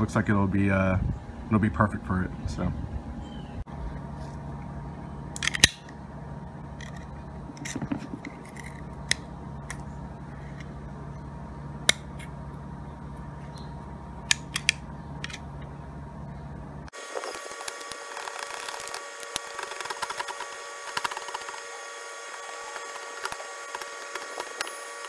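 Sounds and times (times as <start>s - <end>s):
low hum: 0.0s - 25.0s
plastic crackling: 17.0s - 25.0s.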